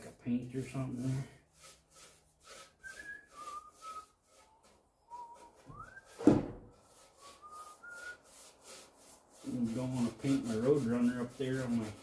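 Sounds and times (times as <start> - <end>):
brush rasping on wood: 0.0 - 12.0
man whistling a slow tune: 2.8 - 4.2, 5.1 - 6.2, 7.2 - 8.2
sharp knock: 6.2 - 6.7.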